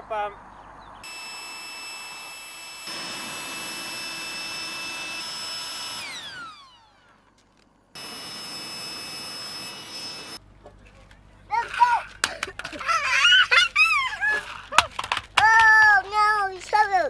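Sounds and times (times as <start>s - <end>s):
electric blower whining: 1.0s - 10.4s.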